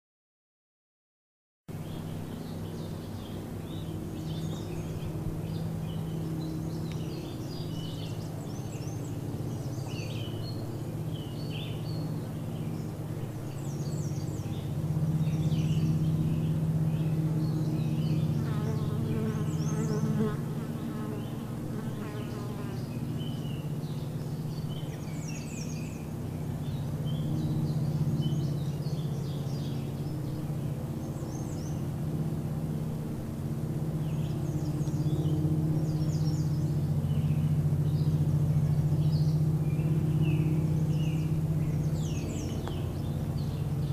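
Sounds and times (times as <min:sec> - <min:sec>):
low insect buzz: 0:15.2 - 0:25.3.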